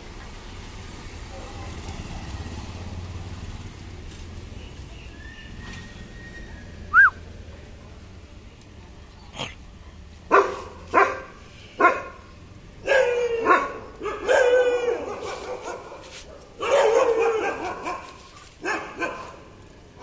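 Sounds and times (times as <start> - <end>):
dog barking aggressively: 10.3 - 12.2, 12.8 - 19.5.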